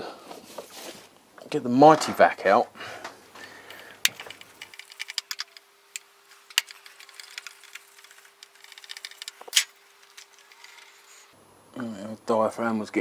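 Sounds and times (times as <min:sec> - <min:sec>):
small tools and plastic clicking: 0:03.5 - 0:11.3.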